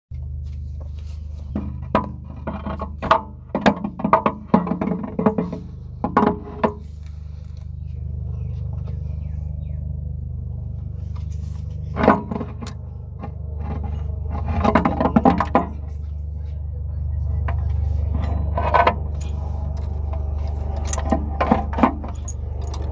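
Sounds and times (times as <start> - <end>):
steady low hum: 0.1 - 22.9
metal parts clinking and knocking: 18.0 - 22.9.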